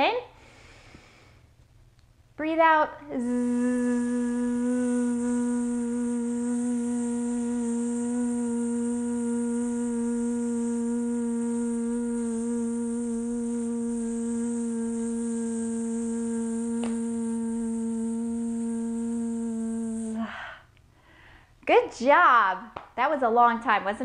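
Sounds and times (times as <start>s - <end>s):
woman humming buzzing breath: 3.1s - 20.7s.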